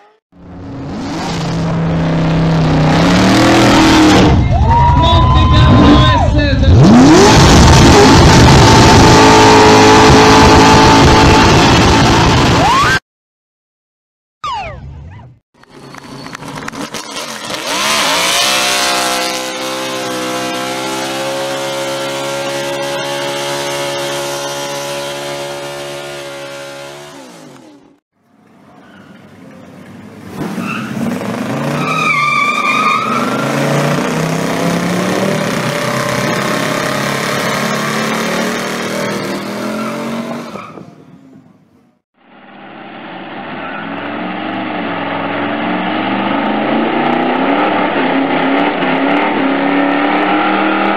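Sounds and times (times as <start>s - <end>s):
car engine revving: 0.4s - 4.5s, 5.7s - 12.7s, 15.6s - 28.0s, 30.2s - 40.8s, 42.8s - 50.9s
tyre squeal: 31.7s - 33.8s.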